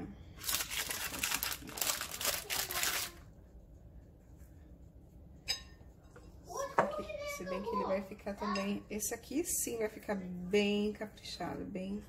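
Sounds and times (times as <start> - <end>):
baking paper crinkling: 0.3 - 3.2.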